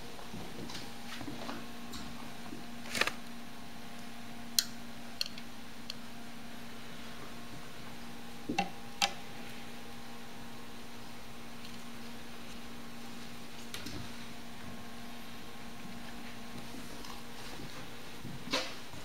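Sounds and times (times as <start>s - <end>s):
steady low hum: 0.0s - 19.0s
gerbils clicking and tapping: 4.6s - 6.0s.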